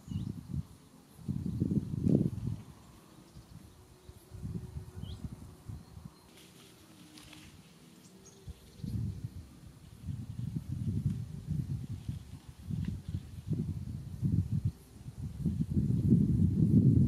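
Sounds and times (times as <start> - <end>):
faint bird chirp: 0.0 - 10.5
wind buffeting microphone: 0.0 - 17.0.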